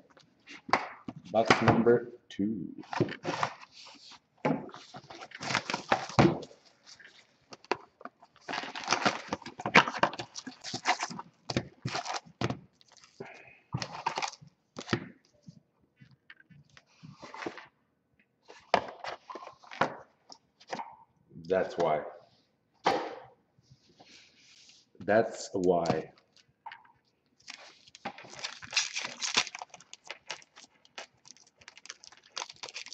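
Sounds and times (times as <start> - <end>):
foil packs rustling: 4.8 - 7.3, 8.3 - 14.4, 27.4 - 32.9
plastic wrap crackling and tearing: 5.1 - 14.4, 27.4 - 32.9.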